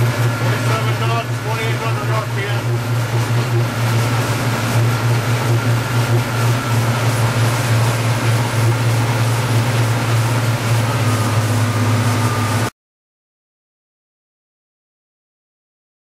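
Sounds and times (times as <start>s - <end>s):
boat diesel engines droning: 0.0s - 12.7s.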